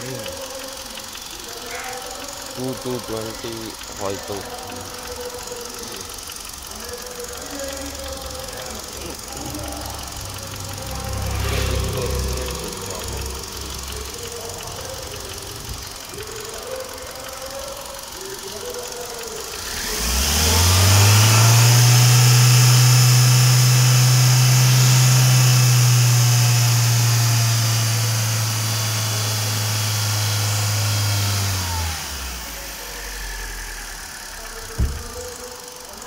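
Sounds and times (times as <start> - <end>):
car engine idling and revving: 0.0 - 36.0
sharp thump: 34.7 - 35.3.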